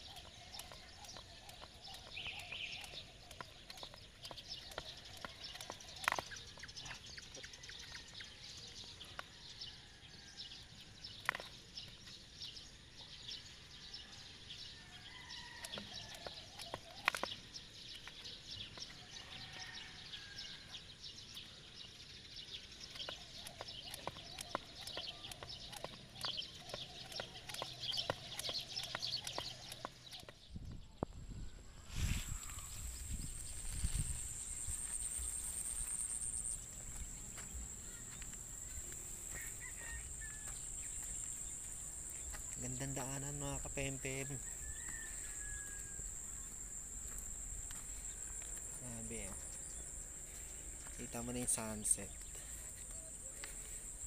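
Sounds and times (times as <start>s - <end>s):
small clicks and ticks: 0.0s - 6.8s, 15.6s - 18.9s, 22.7s - 30.4s
short chirping calls: 0.0s - 7.3s.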